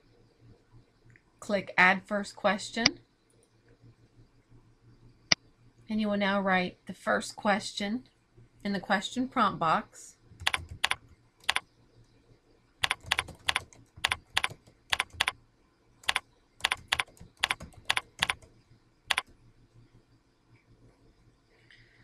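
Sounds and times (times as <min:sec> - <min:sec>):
keyboard keystroke clicks: 0:10.4 - 0:11.6, 0:12.8 - 0:15.3, 0:16.0 - 0:18.5, 0:19.1 - 0:19.3.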